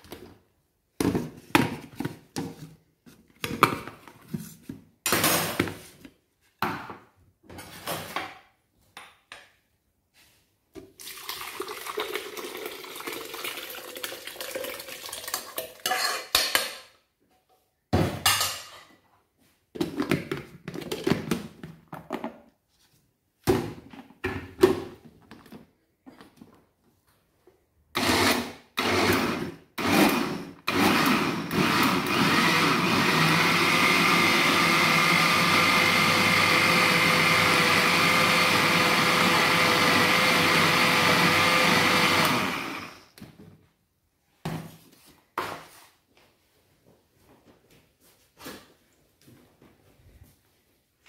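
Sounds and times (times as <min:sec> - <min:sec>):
sauce pouring: 0:11.0 - 0:15.8
spoon scraping saucepan: 0:15.8 - 0:16.4.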